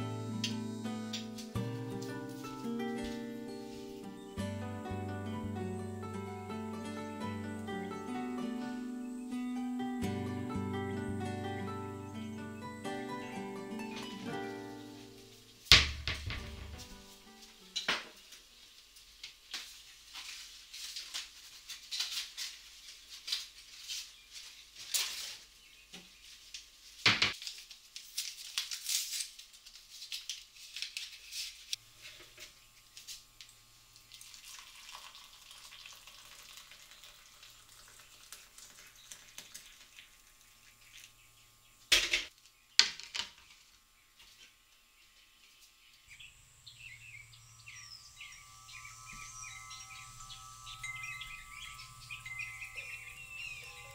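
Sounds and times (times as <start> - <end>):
birds chirping: 0.0 - 15.5, 43.9 - 53.9
rustling: 13.9 - 33.4
sharp knocks: 15.7 - 17.0.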